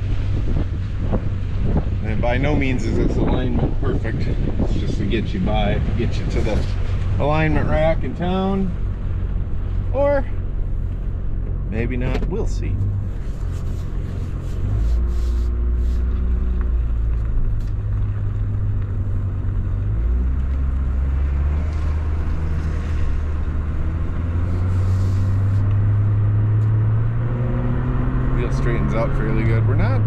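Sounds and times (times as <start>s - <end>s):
car engine drone: 0.0s - 30.0s
tyre and road noise: 0.0s - 30.0s.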